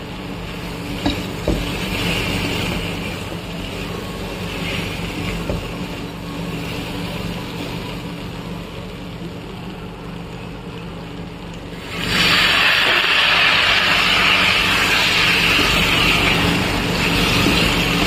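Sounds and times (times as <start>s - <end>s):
chickpeas sizzling in a pan: 0.2s - 9.6s, 11.6s - 18.0s.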